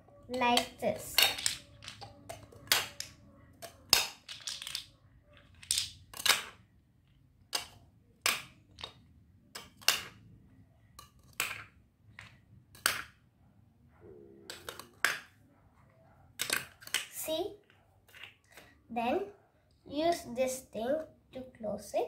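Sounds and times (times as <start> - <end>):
plastic coins clicking into tube: 0.4 - 6.6.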